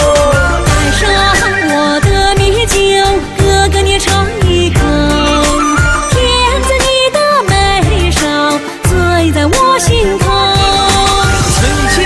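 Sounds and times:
drum beat and bass: 0.0 - 12.0
sliding melody: 0.1 - 7.4, 10.3 - 12.0.

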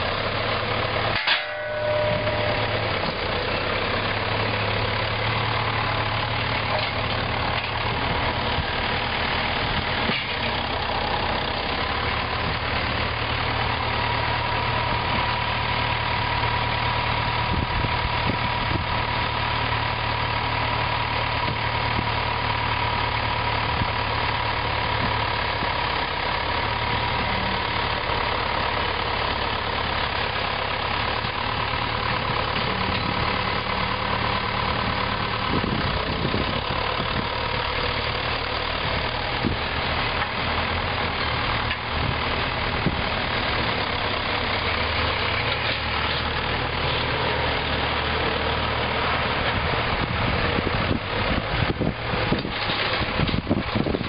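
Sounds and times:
tractor diesel engines running: 0.0 - 54.0
steady whine: 0.8 - 8.7.

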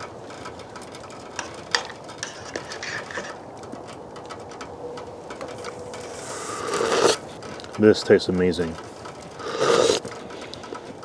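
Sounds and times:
spoon scraping a pot: 2.2 - 3.4
soup simmering hiss: 6.1 - 7.2, 9.4 - 10.0.

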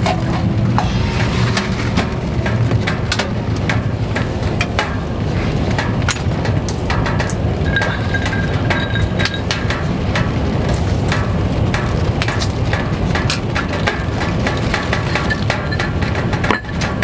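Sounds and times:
fire low rush: 0.0 - 13.2
wood fire crackling and popping: 0.0 - 17.0.

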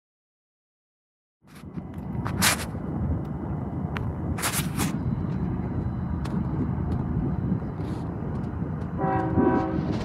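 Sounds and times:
low rumble: 1.5 - 10.0
locomotive air horn: 9.0 - 10.0.

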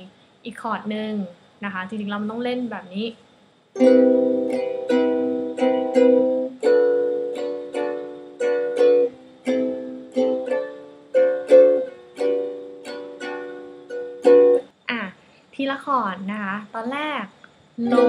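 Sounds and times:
ukulele strumming chords: 3.8 - 14.7, 17.8 - 18.0.

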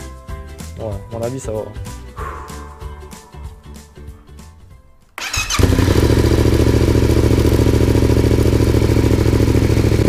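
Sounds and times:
electric starter cranking: 5.2 - 7.0
motorcycle engine idling: 5.2 - 10.0.

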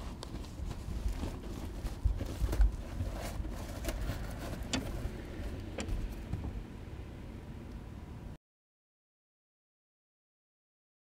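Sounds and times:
insulation roll rustling: 0.0 - 6.6.

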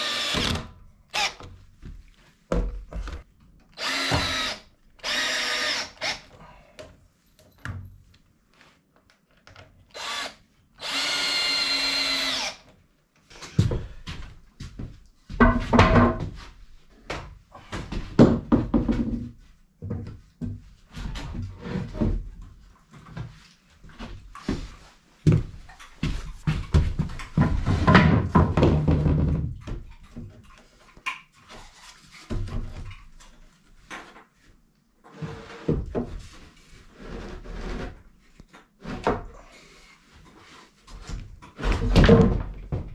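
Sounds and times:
cordless drill whine: 0.0 - 0.6, 3.8 - 6.2, 9.9 - 12.6
wooden boards knocking and clattering: 15.4 - 16.4, 26.6 - 29.6.

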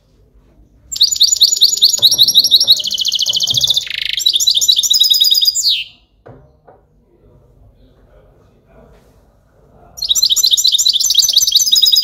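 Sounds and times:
goldfinch singing: 0.9 - 6.0, 10.0 - 12.0
faint knocks: 6.2 - 7.0.

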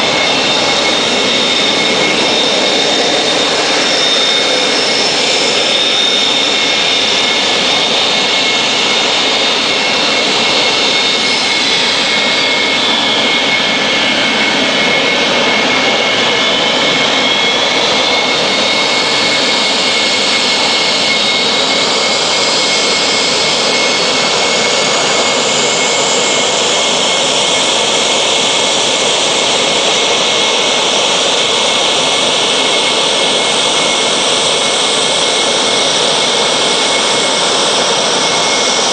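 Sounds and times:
jet engine whining: 0.0 - 38.9.

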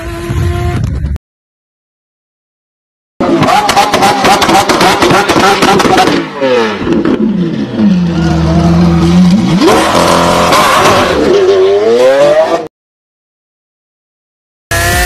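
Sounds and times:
car engine revving: 3.2 - 12.7, 14.7 - 15.0.

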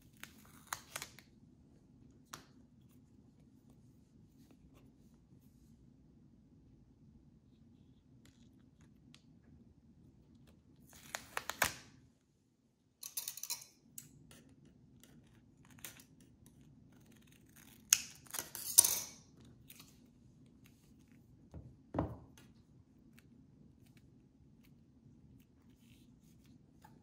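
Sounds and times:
scissors cutting duct tape: 14.3 - 19.1.

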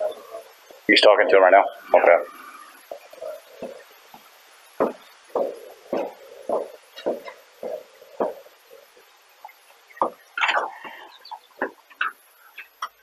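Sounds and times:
footsteps on hard floor: 2.9 - 8.6.

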